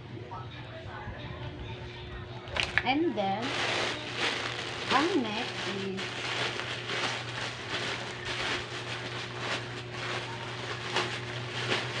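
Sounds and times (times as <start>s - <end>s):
steady low hum: 0.0s - 12.0s
plastic bag rustling: 2.5s - 12.0s.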